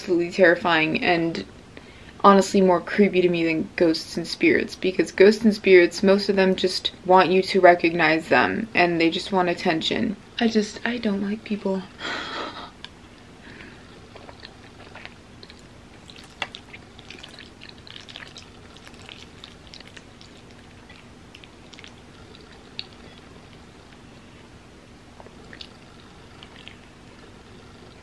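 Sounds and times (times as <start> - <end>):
faint steady hum: 0.0 - 28.0
wet chewing and lip smacks: 14.1 - 24.3, 25.2 - 28.0.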